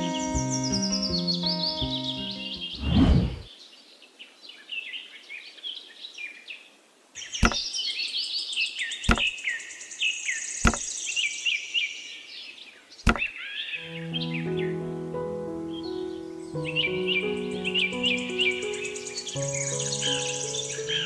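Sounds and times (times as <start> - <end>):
birds chirping: 0.0 - 3.5, 7.2 - 21.0
sharp knocks of brick panels: 7.4 - 7.7, 9.1 - 9.3, 10.6 - 10.9, 13.1 - 13.3.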